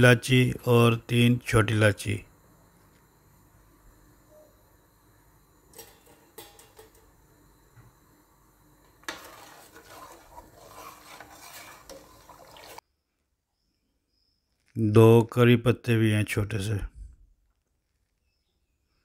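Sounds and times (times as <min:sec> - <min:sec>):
spoon stirring water in steel pot: 0:08.9 - 0:12.8.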